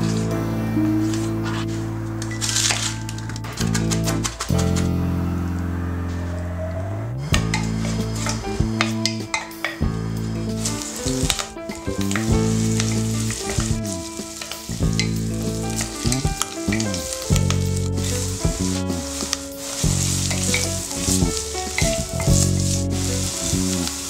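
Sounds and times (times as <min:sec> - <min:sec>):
low sustained tones: 0:00.0 - 0:23.9
wooden spatula stirring: 0:07.4 - 0:24.0
food sizzling in hot oil: 0:10.6 - 0:24.0.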